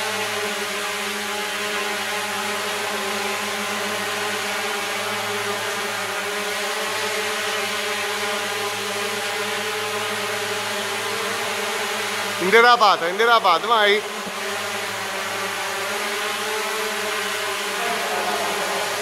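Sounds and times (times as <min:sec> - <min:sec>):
drone hovering: 0:10.9 - 0:19.0.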